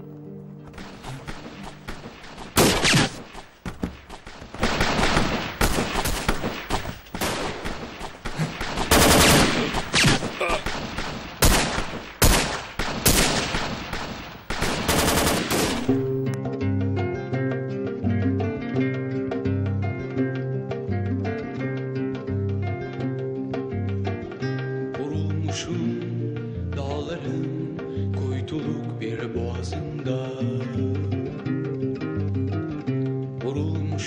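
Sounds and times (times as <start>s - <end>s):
music: 0.0s - 2.8s, 15.1s - 34.0s
automatic rifle fire: 0.7s - 3.5s, 4.2s - 16.4s.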